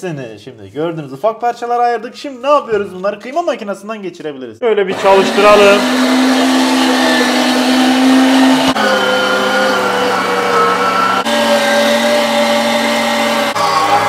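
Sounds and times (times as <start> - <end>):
meat grinder motor humming: 5.0 - 14.0.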